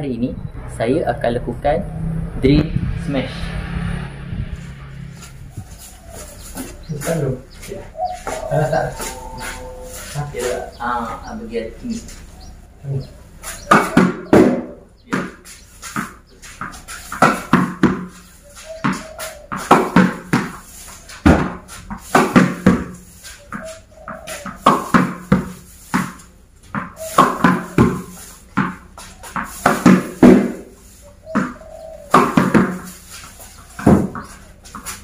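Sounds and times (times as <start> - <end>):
tennis racket hitting ball: 8.0 - 10.8, 13.4 - 35.0
ball bouncing on tiled floor: 8.2 - 9.9, 13.4 - 35.0.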